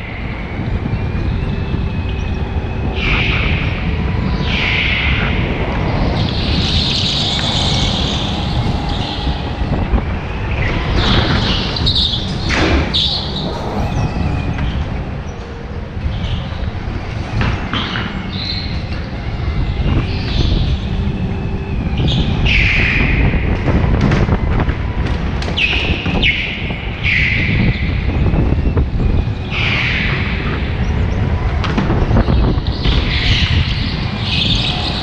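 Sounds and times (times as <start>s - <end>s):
go-kart engine rumble: 5.1s - 25.6s
tyres squealing: 7.0s - 17.2s.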